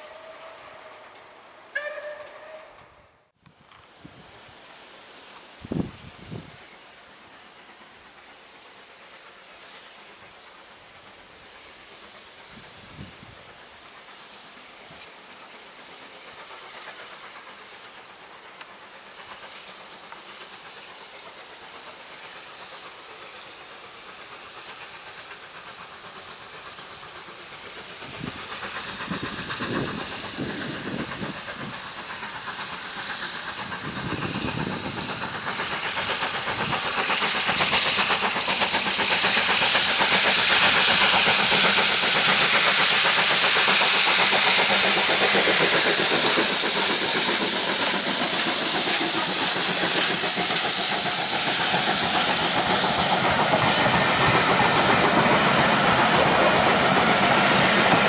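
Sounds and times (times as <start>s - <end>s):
hiss of steam: 0.0s - 58.0s
steam locomotive exhaust beats: 0.0s - 58.0s.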